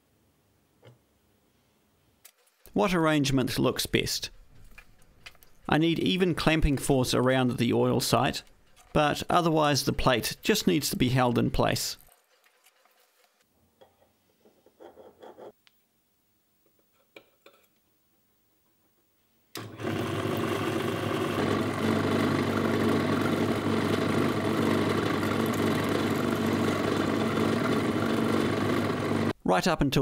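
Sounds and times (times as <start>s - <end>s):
drill press drilling steel: 19.6s - 29.3s.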